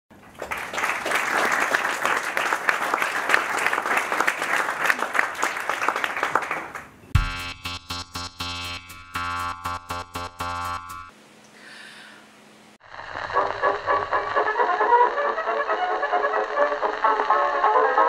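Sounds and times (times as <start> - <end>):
audience applauding: 0.1 - 7.0
electronic theme tune: 7.2 - 11.1, 12.8 - 18.0.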